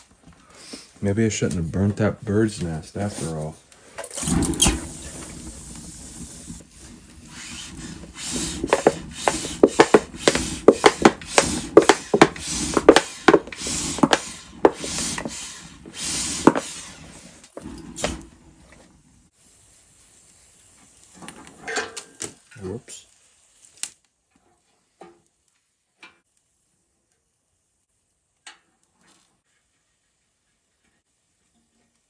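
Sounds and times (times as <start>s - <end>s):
twigs crackling and popping in fire: 3.7s - 11.7s, 19.9s - 24.2s.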